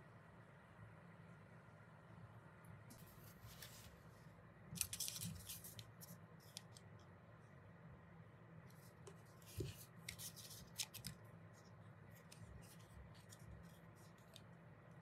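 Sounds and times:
paper rustling: 2.9 - 4.1, 4.8 - 6.6, 8.8 - 14.5.

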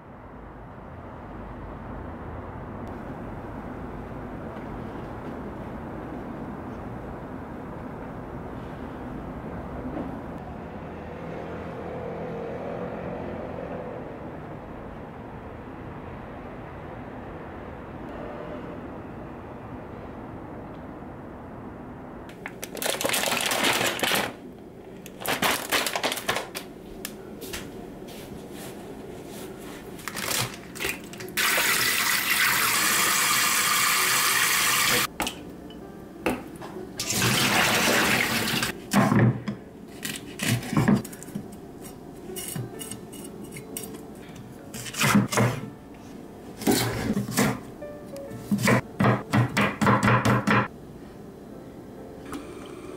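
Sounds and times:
water rushing into a sink: 31.4 - 35.1, 37.0 - 38.7.

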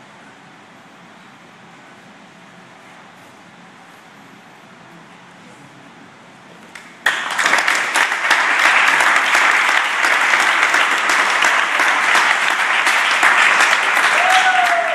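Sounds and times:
audience applause: 7.0 - 14.9.

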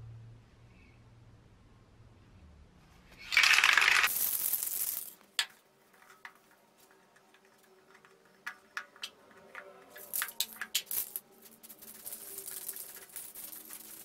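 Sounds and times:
spray can shaken with ball rattling: 3.2 - 14.0.

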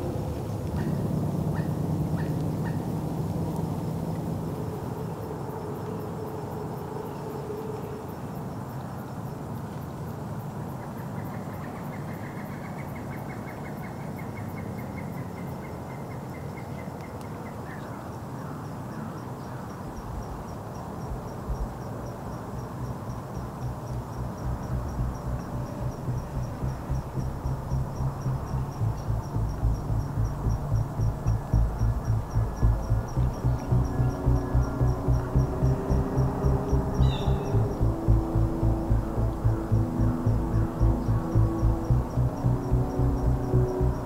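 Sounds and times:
low pulsing beat: 0.0 - 6.9, 21.1 - 21.8, 23.6 - 44.0
insects chirping: 0.0 - 16.6, 17.6 - 44.0.

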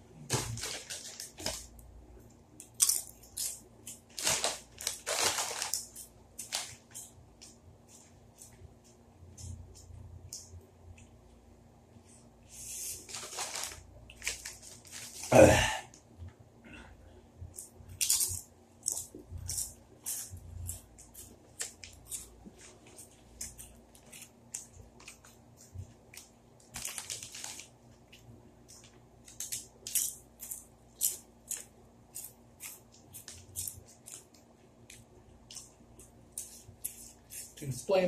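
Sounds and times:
potato chips crunching: 2.6 - 7.2, 17.5 - 25.4, 26.0 - 37.6
crackling rustle: 12.7 - 15.5, 21.6 - 28.0.

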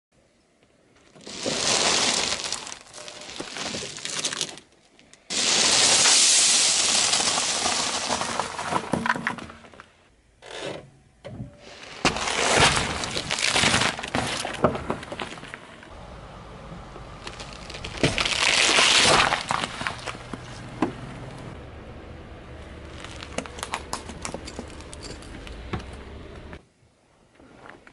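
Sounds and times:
tyre crushing crunching objects: 1.2 - 4.7, 11.9 - 15.8, 17.2 - 21.0, 22.8 - 26.6.

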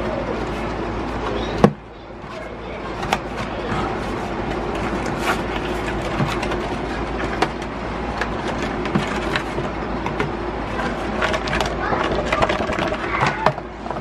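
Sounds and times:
rumbling background noise: 0.0 - 14.0
packaging being handled: 2.3 - 13.5.

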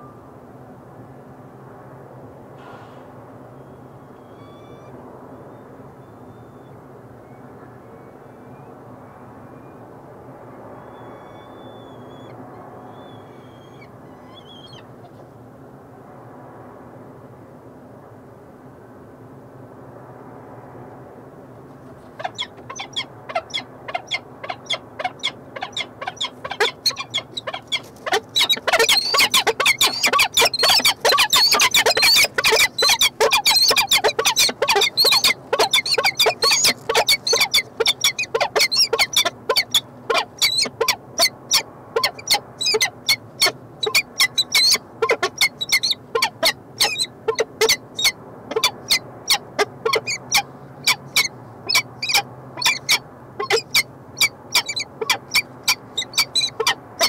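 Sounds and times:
falcons giving harsh chupping calls: 22.1 - 57.0.

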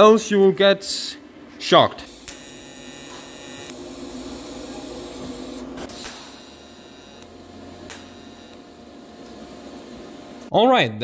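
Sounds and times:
welding arc humming: 2.0 - 10.5.

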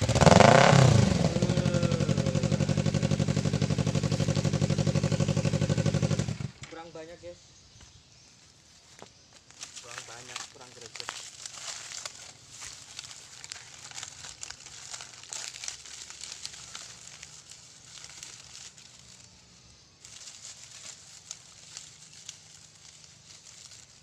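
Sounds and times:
dry crackling and crinkling: 8.4 - 24.0.

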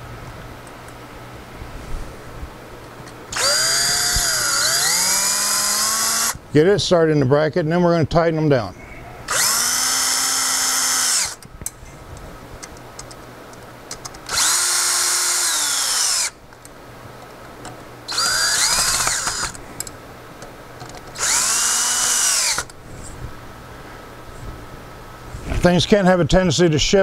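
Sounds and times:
cordless drill driving bolts: 3.3 - 6.4, 9.3 - 11.4, 14.3 - 16.4, 18.1 - 19.6, 21.1 - 22.8.

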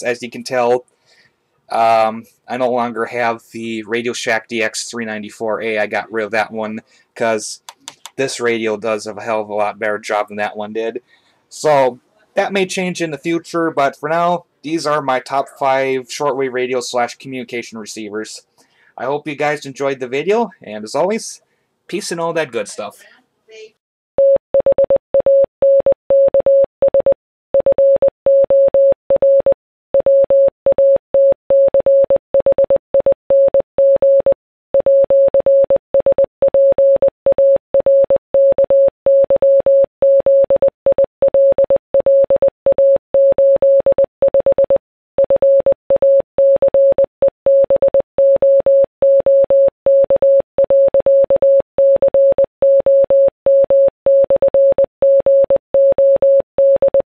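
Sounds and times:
morse code beeps: 24.2 - 57.0.

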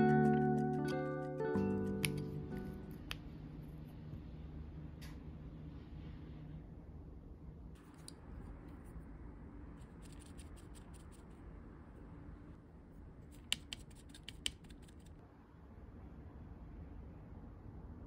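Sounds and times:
brush scratching and tapping palette: 0.2 - 4.1, 7.8 - 9.1, 9.7 - 11.4, 13.2 - 15.2.

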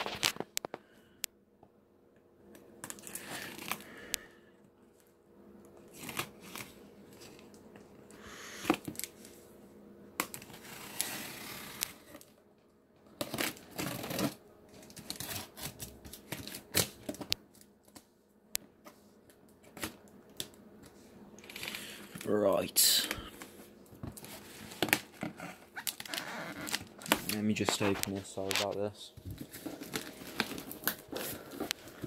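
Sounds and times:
cardboard rustling and scraping: 10.4 - 12.3, 13.2 - 17.3, 23.6 - 32.0.

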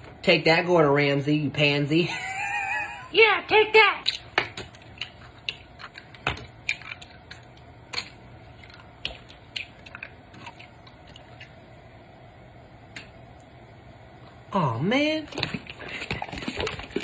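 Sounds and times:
eggshell cracking: 4.1 - 11.6.

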